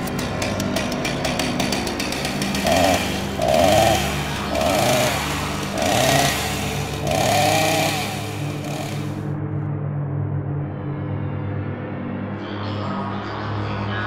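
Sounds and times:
low steady drone: 0.0s - 14.0s
chainsaw revving: 0.4s - 9.2s.

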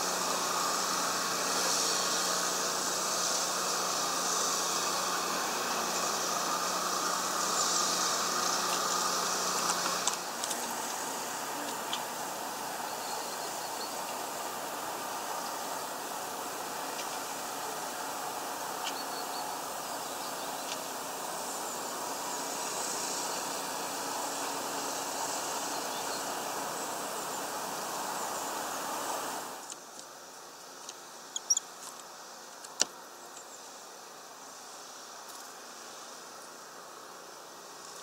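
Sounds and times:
small birds chirping: 30.9s - 31.7s.

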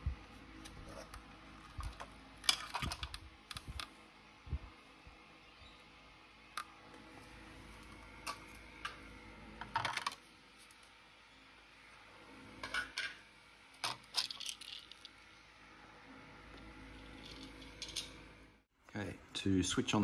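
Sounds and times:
plastic parts clicking and clattering: 1.6s - 3.9s, 9.6s - 10.2s, 13.8s - 15.1s.

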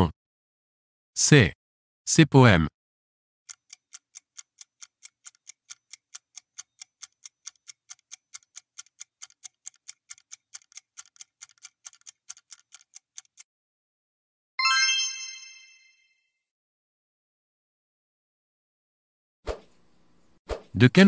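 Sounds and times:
clock ticking: 3.5s - 13.5s.

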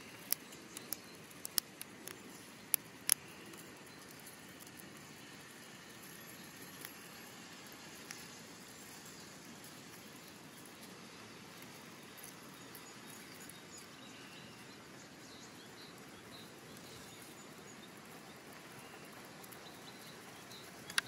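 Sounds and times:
squirrel gnawing nutshell: 0.0s - 13.6s
small birds chirping: 0.0s - 21.0s.

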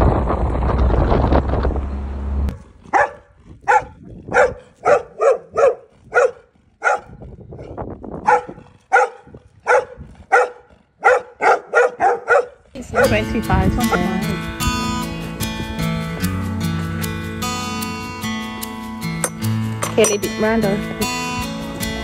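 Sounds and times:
dog barking: 2.9s - 13.2s.

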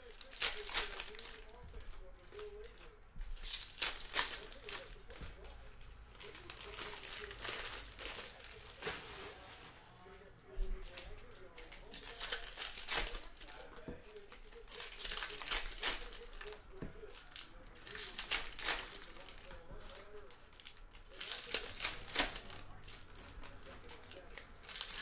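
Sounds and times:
plastic wrappers tearing and crinkling: 0.0s - 10.2s, 10.8s - 25.0s.

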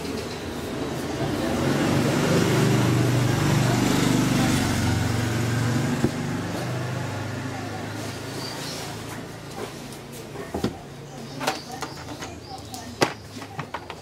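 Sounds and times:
vehicle engine passing by: 0.1s - 9.8s.

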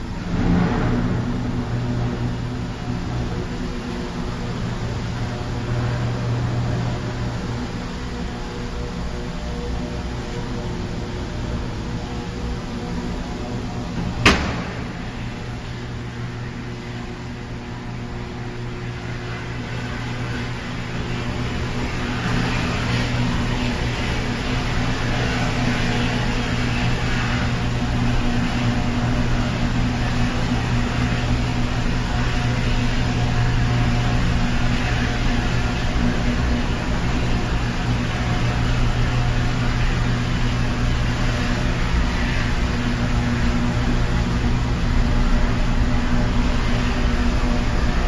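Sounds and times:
crane machinery roar: 0.0s - 48.0s
low electrical drone: 0.0s - 48.0s.

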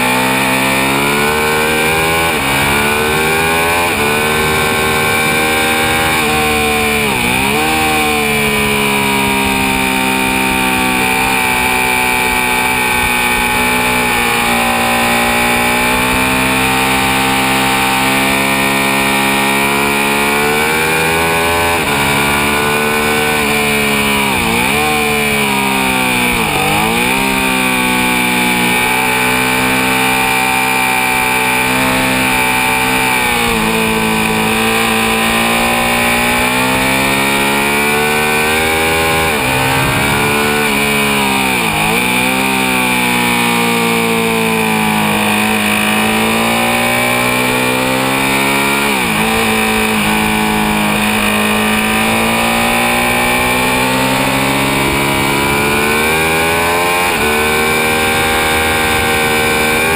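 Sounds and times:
motorcycle engine revving high: 0.0s - 59.9s
wind rushing: 38.3s - 42.1s.

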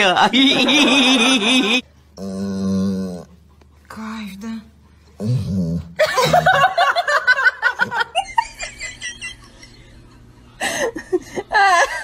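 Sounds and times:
person laughing: 0.2s - 1.8s, 6.0s - 9.8s.

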